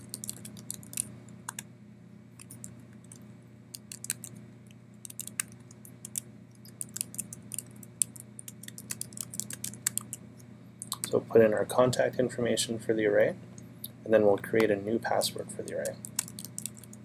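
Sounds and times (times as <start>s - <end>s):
typing on a computer keyboard: 0.0s - 1.6s, 3.8s - 4.3s, 5.0s - 10.2s, 10.8s - 11.1s, 15.7s - 17.0s
low steady hum: 0.0s - 17.0s.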